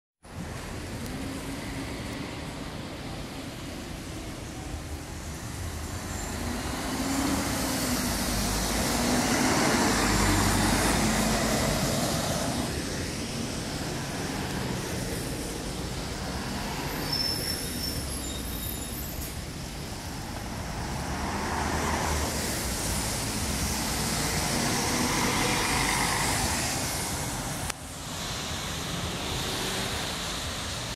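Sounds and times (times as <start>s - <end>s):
bus engine passing on wet road: 0.3s - 30.9s.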